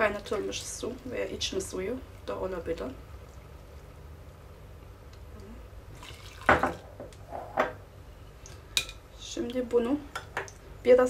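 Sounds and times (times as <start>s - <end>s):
water pouring into a glass jug: 5.9s - 6.9s.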